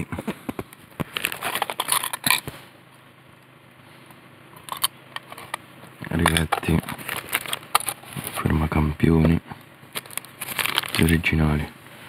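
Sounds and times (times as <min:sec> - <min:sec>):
plastic crinkling: 0:01.0 - 0:02.5, 0:06.2 - 0:08.5, 0:09.9 - 0:11.3.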